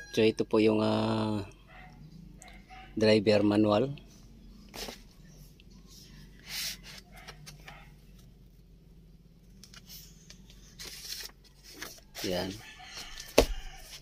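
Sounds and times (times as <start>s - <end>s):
faint low hum: 0.8s - 12.2s
paper pages rustling: 9.6s - 14.0s.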